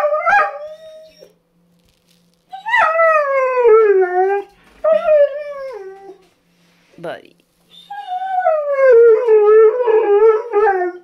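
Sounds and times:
dog howling: 0.0 - 1.3, 2.5 - 6.3, 7.8 - 11.0.

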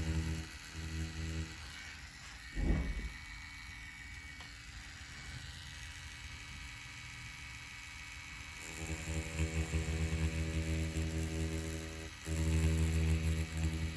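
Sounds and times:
faint steady hum: 0.0 - 13.9
rotary tattoo pen humming: 0.0 - 13.9
loud thump: 2.6 - 3.2.

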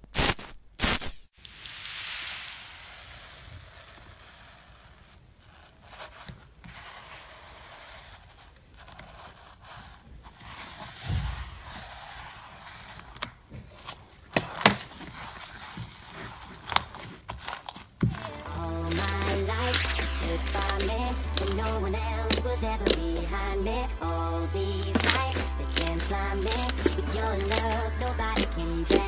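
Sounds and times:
slime scraping and crackling: 14.4 - 23.5, 24.6 - 29.0.

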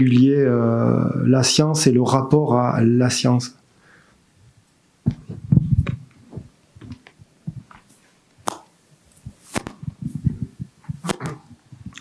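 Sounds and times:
microphone handling thumps and rubbing: 5.0 - 8.1, 9.1 - 12.0.

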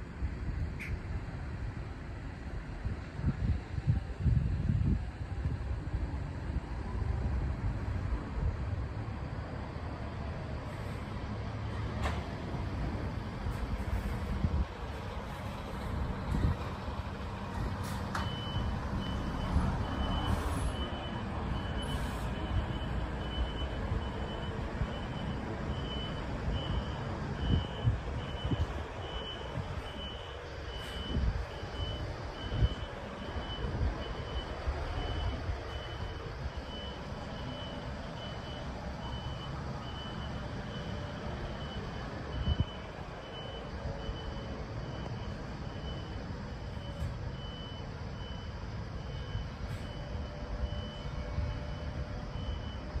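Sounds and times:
traffic rumble: 0.0 - 53.0
reversing alarm beeps: 12.9 - 53.0.

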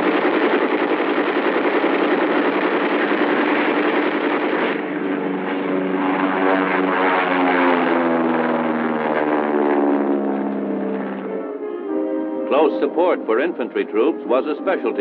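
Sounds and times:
aircraft engine roar: 0.0 - 15.0
sustained film music: 9.3 - 15.0.

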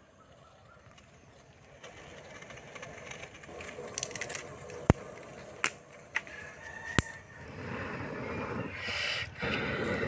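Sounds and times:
wood fire crackling: 0.6 - 10.0.

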